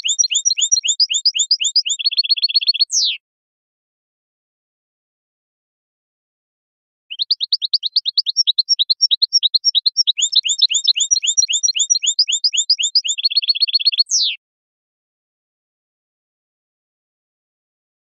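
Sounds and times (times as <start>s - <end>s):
goldfinch song: 0.0s - 3.2s, 7.1s - 14.4s.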